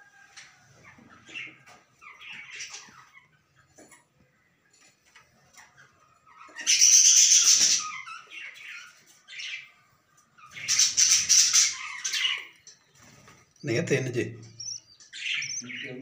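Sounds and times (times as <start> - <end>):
budgerigars squawking: 6.3 - 9.7, 10.4 - 12.6, 13.7 - 16.0.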